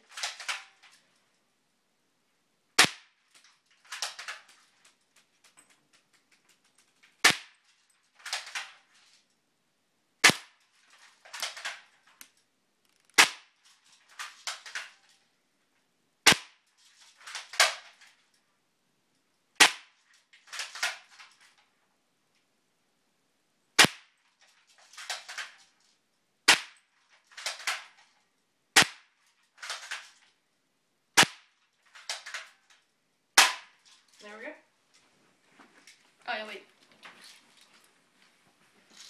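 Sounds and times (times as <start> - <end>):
airsoft gun shots: 2.8 - 3.2, 7.2 - 7.6, 10.2 - 10.6, 13.2 - 13.5, 16.3 - 16.6, 19.6 - 20.0, 23.8 - 24.1, 26.5 - 26.8, 28.8 - 29.1, 31.2 - 31.5, 33.4 - 33.8.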